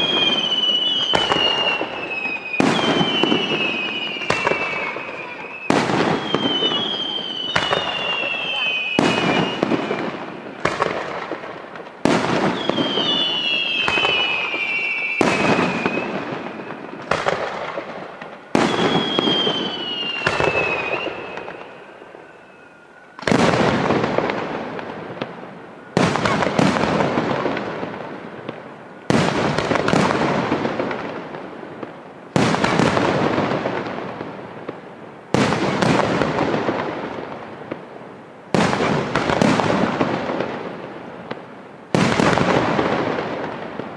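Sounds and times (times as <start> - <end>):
firework whistles falling in pitch: 0.0 - 11.0, 12.1 - 17.4, 18.5 - 27.2, 32.4 - 33.1.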